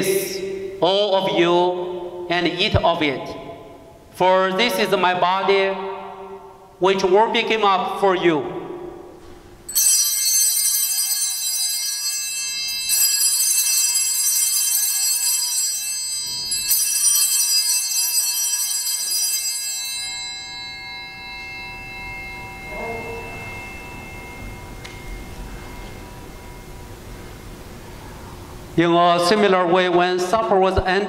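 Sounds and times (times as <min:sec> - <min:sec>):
altar bells ringing: 0:09.7 - 0:28.8.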